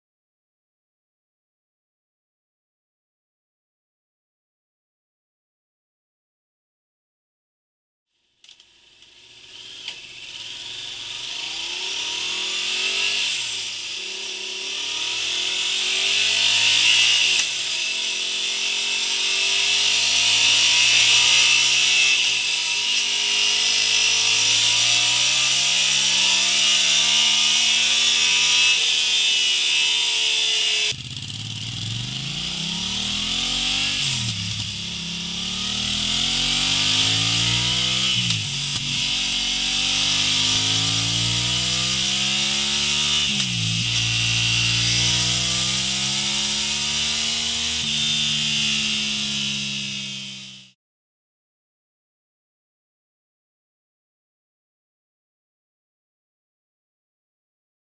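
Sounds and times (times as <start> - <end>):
motorcycle engine revving: 8.8 - 50.8.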